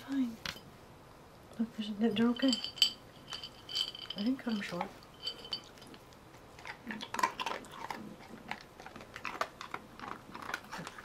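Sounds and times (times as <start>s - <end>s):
dog chewing hard treat crunches: 5.6s - 11.0s.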